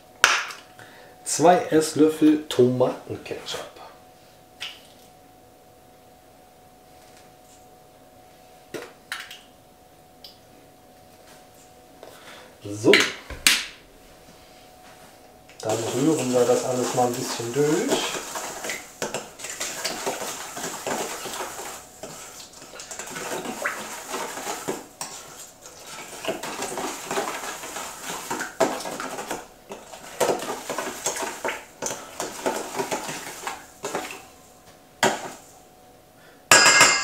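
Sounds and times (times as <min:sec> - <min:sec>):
utensil stirring in a bowl: 0:15.6 - 0:34.4, 0:35.0 - 0:35.5.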